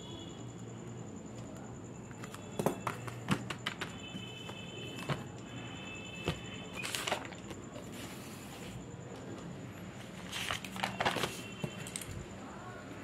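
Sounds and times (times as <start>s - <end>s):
notebook pages rustling: 6.7s - 8.8s, 9.9s - 12.1s.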